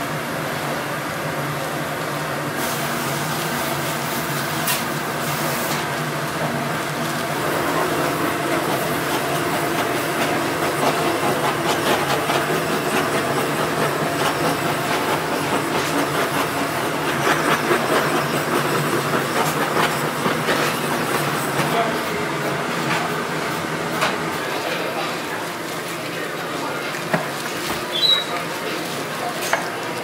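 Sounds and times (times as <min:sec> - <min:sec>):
kitchen hum: 0:00.0 - 0:30.0
blowtorch flame hissing: 0:02.4 - 0:25.4.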